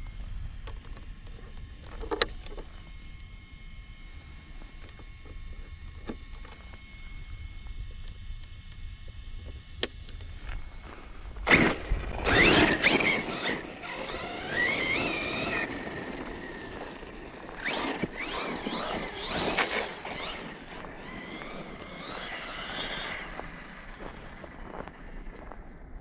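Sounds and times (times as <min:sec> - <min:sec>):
electric motor whining: 0:00.0 - 0:24.6.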